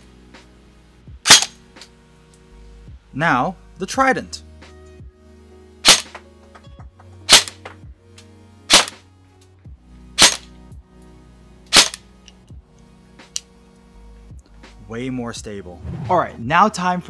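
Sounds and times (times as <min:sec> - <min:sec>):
background music: 0:00.0 - 0:17.0
airsoft gun shots: 0:01.2 - 0:01.6, 0:05.8 - 0:06.2, 0:07.3 - 0:07.7, 0:08.7 - 0:09.0, 0:10.2 - 0:10.5, 0:11.7 - 0:12.0.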